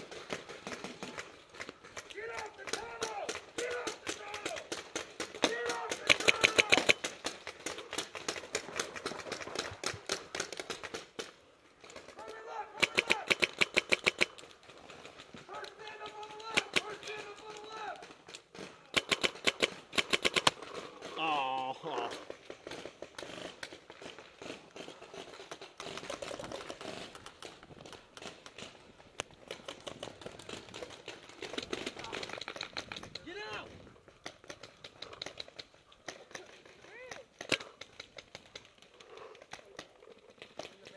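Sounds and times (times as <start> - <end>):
paintball markers firing: 0.0 - 18.2, 18.9 - 20.8.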